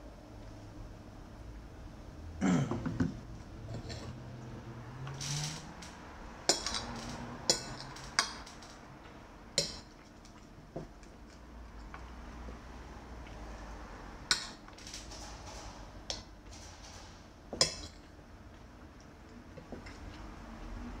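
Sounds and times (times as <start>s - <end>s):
metal spoon clinking on plate: 6.5s - 8.4s, 9.6s - 9.9s, 17.6s - 18.0s.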